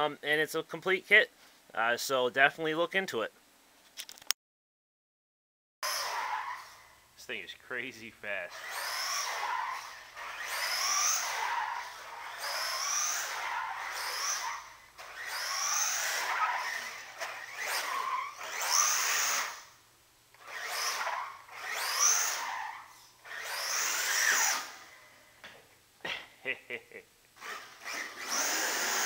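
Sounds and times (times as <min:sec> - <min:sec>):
electric motor whining: 0:08.5 - 0:19.8, 0:20.4 - 0:24.9, 0:27.4 - 0:29.0.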